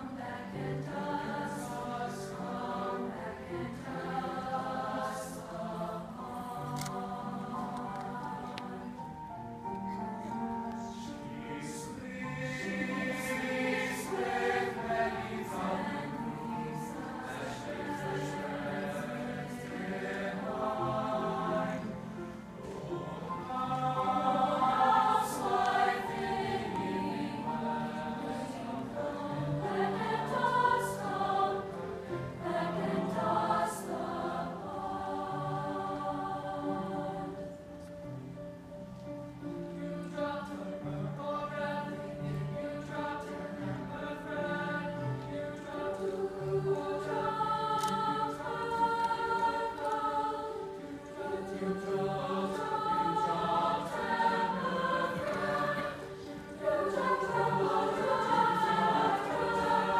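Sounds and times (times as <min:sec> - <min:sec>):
choir singing in harmony: 0:00.0 - 0:59.9.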